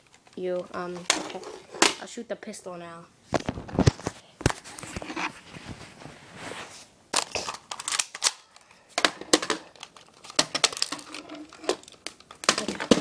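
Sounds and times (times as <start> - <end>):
rustling: 3.3 - 8.3.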